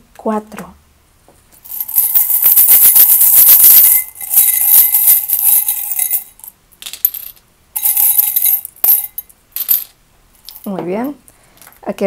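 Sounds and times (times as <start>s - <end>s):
metal tokens jingling in a glass: 1.6s - 10.7s.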